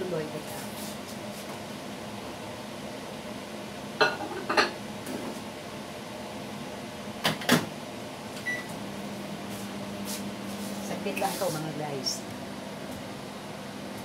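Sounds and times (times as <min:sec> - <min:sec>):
microwave oven humming: 0:00.0 - 0:14.0
keypad beep: 0:08.5 - 0:08.7.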